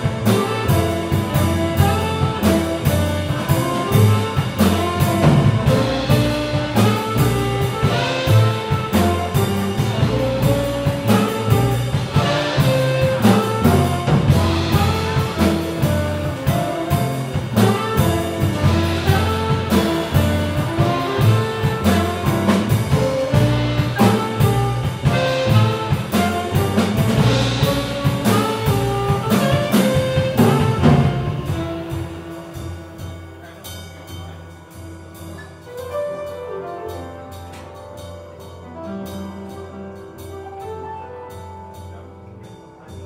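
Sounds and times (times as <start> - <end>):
tenor saxophone: 0.0 - 33.6
double bass: 0.0 - 43.0
drum kit: 0.0 - 43.0
piano: 0.0 - 43.0.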